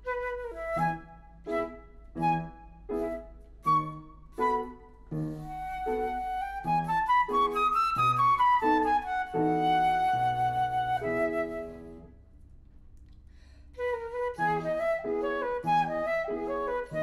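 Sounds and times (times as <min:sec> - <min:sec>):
flute melody: 0:00.0 - 0:12.2, 0:13.8 - 0:17.0
piano chords: 0:00.0 - 0:12.6, 0:14.2 - 0:17.0.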